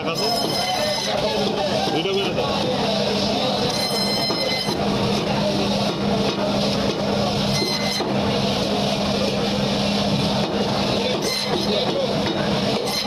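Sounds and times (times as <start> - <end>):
band saw humming: 7.4 - 8.4, 10.9 - 13.0
saw blade cutting through fish: 12.7 - 13.0.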